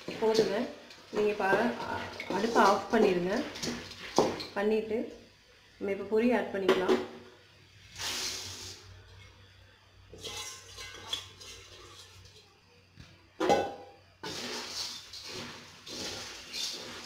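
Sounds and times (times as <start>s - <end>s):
puffed rice poured into metal pan: 0.0s - 4.5s, 7.9s - 8.9s, 14.2s - 17.0s.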